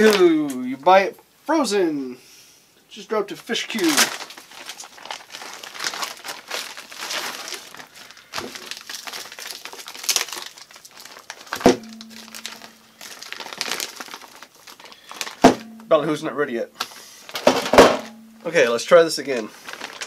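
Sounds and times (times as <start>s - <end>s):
plastic bag crinkling: 3.5s - 16.1s, 16.8s - 20.0s
sharp knock: 15.4s - 15.9s.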